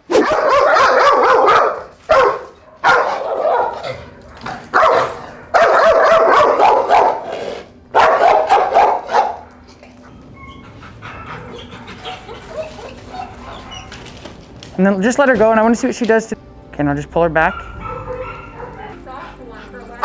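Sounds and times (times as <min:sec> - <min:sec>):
dog barking: 0:00.1 - 0:09.6, 0:17.5 - 0:19.0.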